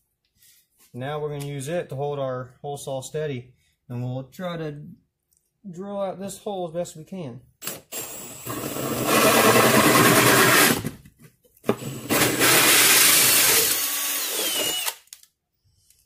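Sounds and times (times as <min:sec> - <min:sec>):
drill cutting through drywall: 0:07.6 - 0:11.0, 0:11.6 - 0:15.2.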